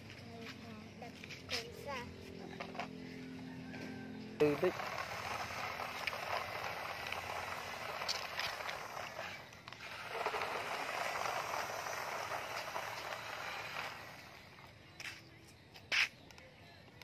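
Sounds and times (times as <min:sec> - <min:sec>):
toy truck wheels rolling on concrete: 0:00.0 - 0:17.0.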